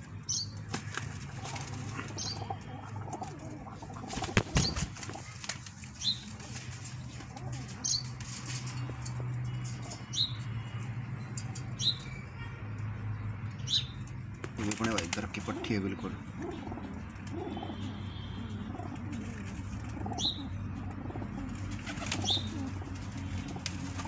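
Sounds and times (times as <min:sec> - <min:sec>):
pigeons flapping wings: 0:00.6 - 0:08.7, 0:14.4 - 0:15.6, 0:21.4 - 0:24.0.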